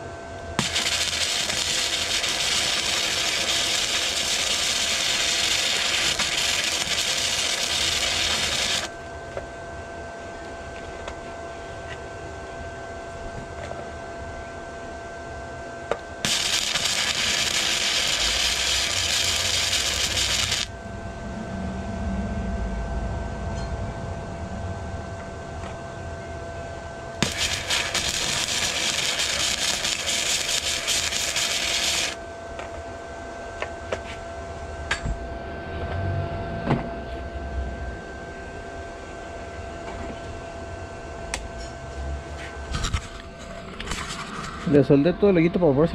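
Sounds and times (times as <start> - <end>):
arc welding crackling hiss: 0.6 - 9.0, 16.2 - 20.8, 27.2 - 32.2.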